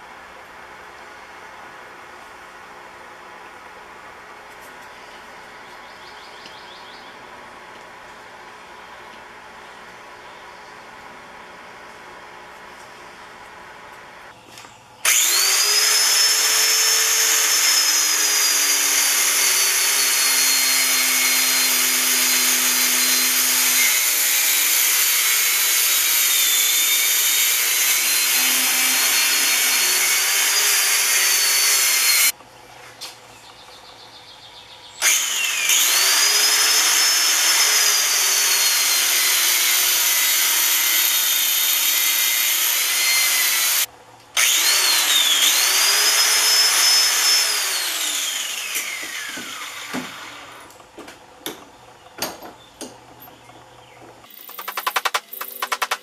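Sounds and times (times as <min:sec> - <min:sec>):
angle grinder cutting metal: 0:15.0 - 0:32.4, 0:35.0 - 0:50.7.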